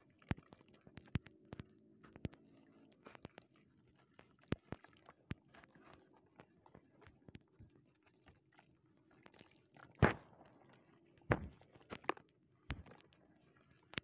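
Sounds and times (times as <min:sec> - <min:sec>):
gritty crackling in wet sand: 0:00.0 - 0:14.0
loud crunch: 0:10.0 - 0:10.5.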